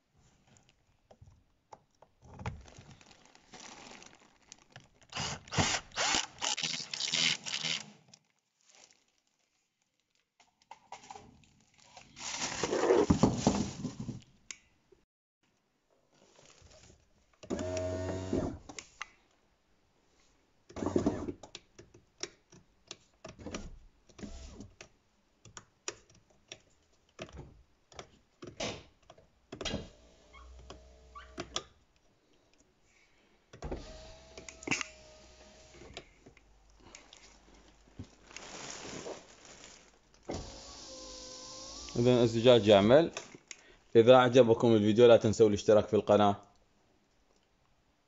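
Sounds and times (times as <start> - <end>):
electric window motor whirring: 17.6 - 18.5, 33.8 - 36.0, 40.3 - 42.0.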